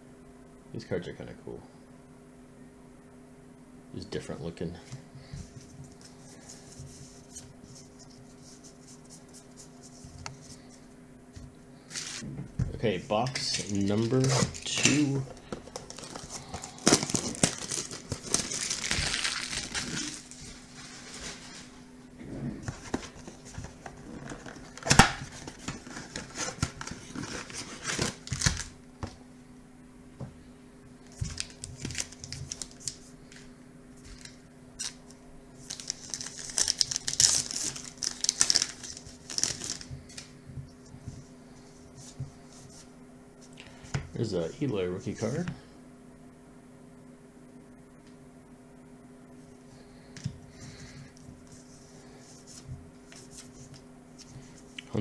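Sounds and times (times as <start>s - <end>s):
card pack wrapper tearing: 13.3s - 20.4s, 24.1s - 28.8s, 31.1s - 33.1s, 34.1s - 40.2s
plastic wrap crinkling and tearing: 13.3s - 21.8s, 22.8s - 28.8s, 31.0s - 33.1s, 34.1s - 40.3s.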